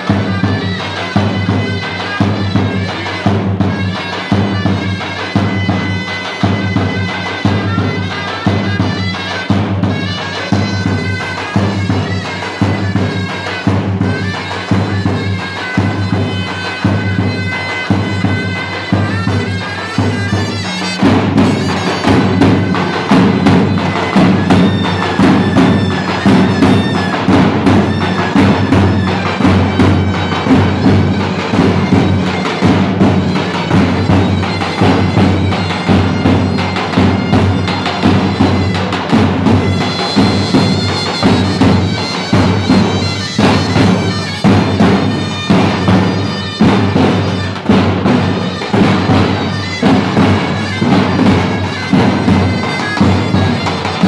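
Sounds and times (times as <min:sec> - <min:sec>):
large drums beating: 0:00.0 - 0:54.0
shrill reedy wind melody: 0:10.4 - 0:47.7.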